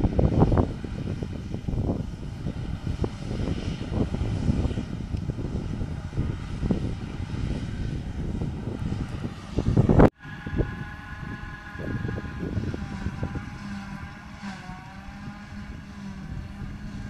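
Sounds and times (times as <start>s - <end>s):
forage harvester engine drone: 0.0s - 17.0s
wind buffeting microphone: 0.0s - 17.0s.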